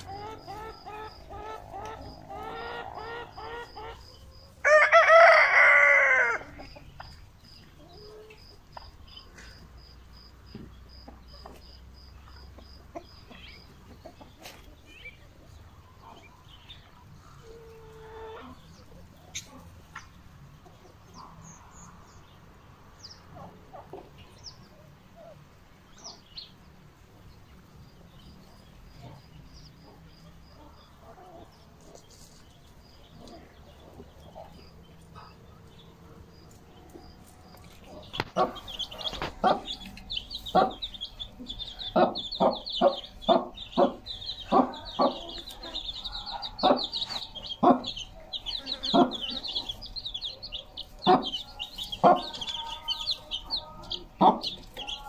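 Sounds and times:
chickens clucking: 0:00.0 - 0:55.0
chicks peeping: 0:00.0 - 0:55.0.

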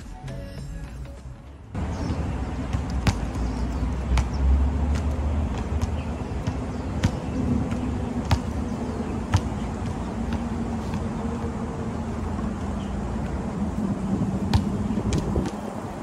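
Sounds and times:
road traffic rumble: 0:00.8 - 0:16.0
basketball bouncing on hard court: 0:01.8 - 0:11.5, 0:14.4 - 0:15.6.

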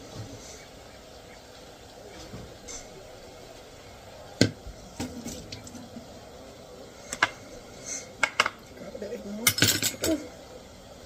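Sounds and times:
kitchen utensils clinking: 0:08.2 - 0:08.7, 0:09.3 - 0:10.3.

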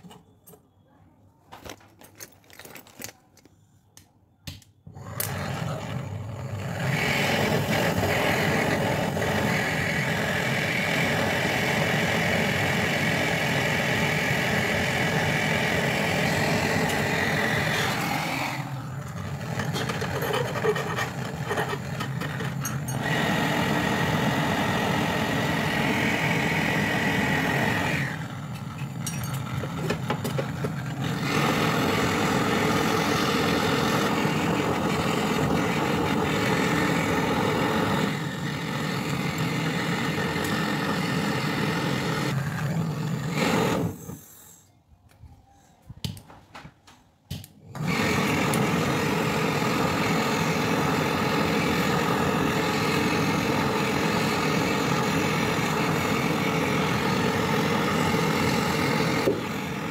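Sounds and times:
torch flame hissing: 0:04.9 - 0:29.1, 0:29.7 - 0:44.7, 0:47.6 - 0:59.9.

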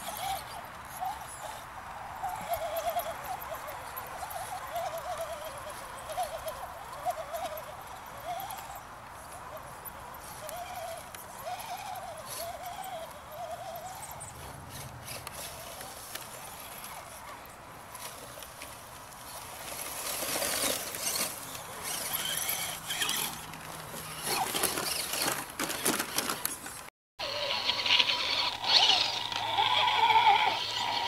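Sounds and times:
toy trucks brushing through grass: 0:00.0 - 0:31.0
wavering animal call: 0:02.2 - 0:14.4, 0:27.2 - 0:31.0
electric drivetrain whine: 0:27.2 - 0:31.0.

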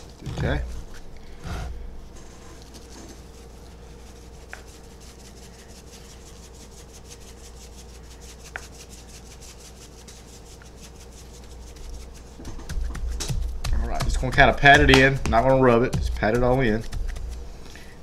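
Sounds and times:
seasoning pattering onto meat: 0:02.4 - 0:18.0
shaker bottle rattling granules: 0:04.1 - 0:17.5.

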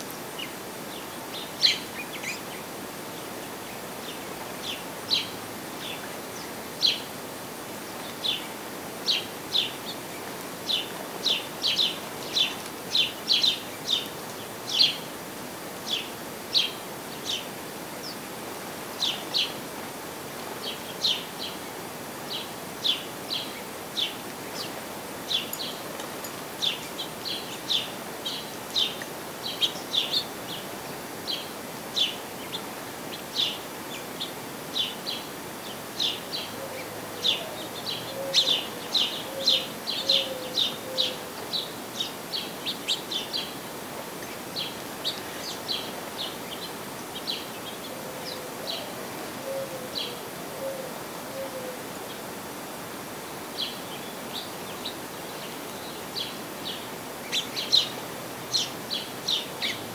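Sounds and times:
sparrows and finches chirping: 0:00.0 - 0:07.2, 0:07.8 - 0:15.1, 0:15.8 - 0:50.2, 0:53.6 - 0:59.9
faint outdoor hiss: 0:00.0 - 0:59.9.

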